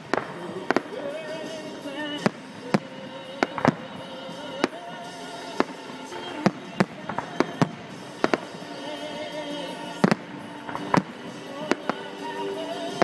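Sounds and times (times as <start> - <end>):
firework shells bursting: 0.0 - 13.0.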